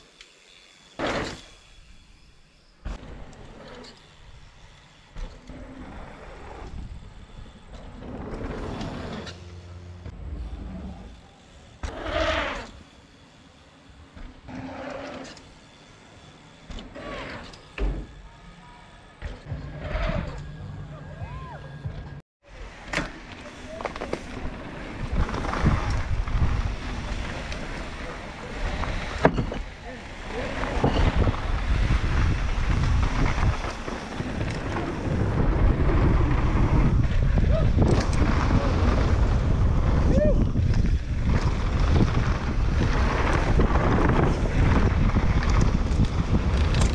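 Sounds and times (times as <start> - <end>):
bike tyre noise: 0.0 - 46.9
wind rush: 30.5 - 46.9.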